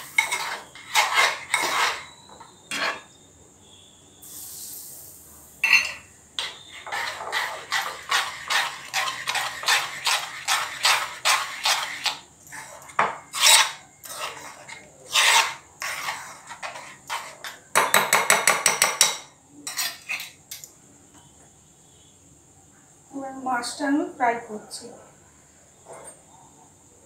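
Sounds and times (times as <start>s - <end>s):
batter beaten by hand in plastic bowl: 6.9s - 12.3s.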